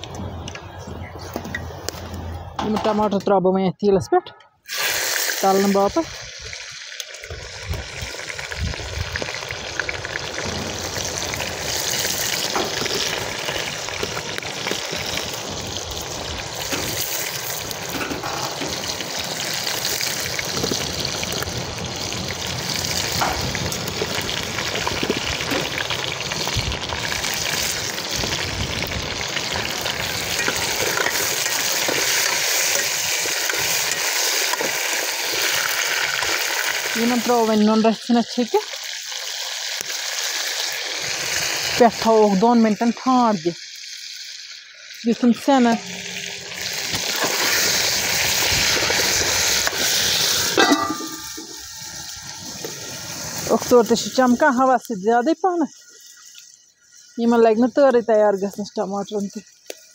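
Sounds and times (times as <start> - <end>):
tomato sizzling in hot oil: 4.6 - 59.9
ladle scraping metal wok: 45.6 - 52.2.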